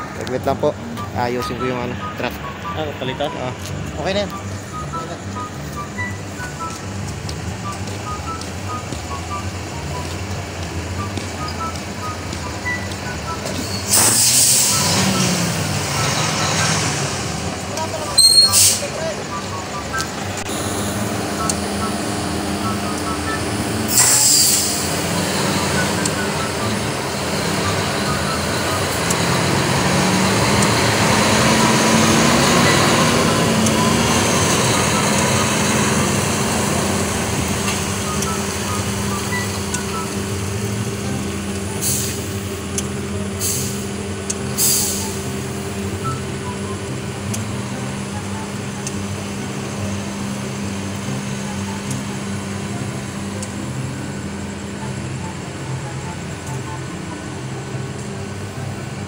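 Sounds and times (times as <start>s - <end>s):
truck diesel engine running: 0.0s - 59.0s
air brake hiss: 13.8s - 14.8s, 18.2s - 18.9s, 23.9s - 24.9s, 41.8s - 42.3s, 43.4s - 43.8s, 44.6s - 45.2s.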